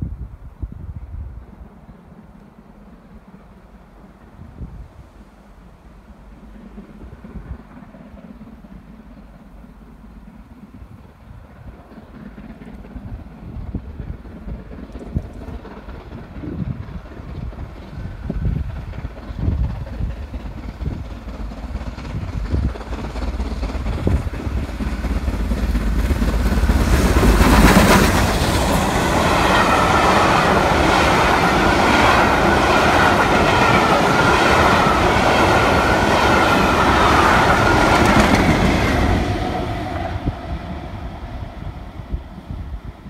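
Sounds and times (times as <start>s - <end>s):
steam locomotive passing at speed: 0.0s - 43.0s
train wheels ringing on rails: 11.6s - 41.6s.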